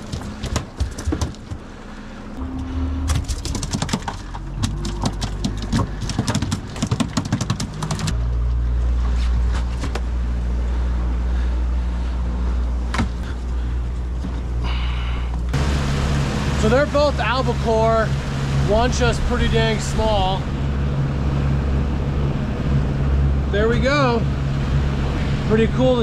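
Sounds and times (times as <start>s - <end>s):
rapid irregular knocks and clatter: 0.0s - 1.7s, 3.1s - 8.2s
motorboat engine running: 0.0s - 26.0s.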